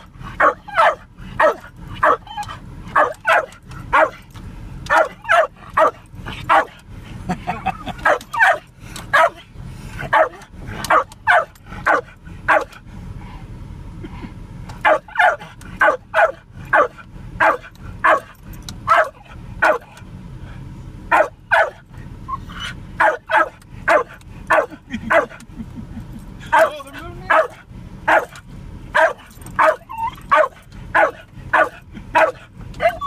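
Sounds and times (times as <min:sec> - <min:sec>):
low steady rumble: 0:00.0 - 0:33.0
dog barking: 0:00.4 - 0:04.2, 0:04.9 - 0:06.8, 0:08.0 - 0:09.4, 0:10.0 - 0:12.8, 0:14.8 - 0:19.9, 0:21.1 - 0:21.8, 0:23.0 - 0:25.4, 0:26.5 - 0:33.0.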